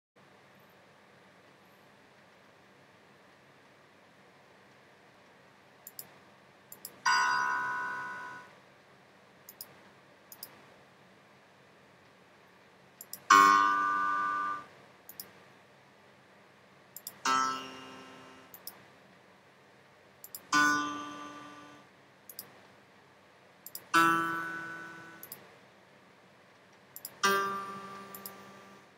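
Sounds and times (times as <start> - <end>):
computer mouse clicks: 5.8 - 6.1, 6.7 - 7.0, 9.5 - 10.6, 13.0 - 13.3, 15.1 - 15.4, 17.0 - 17.2, 18.5 - 18.8, 20.2 - 20.5, 22.3 - 22.6, 23.6 - 23.9, 25.2 - 25.4, 26.6 - 27.3, 28.1 - 28.4.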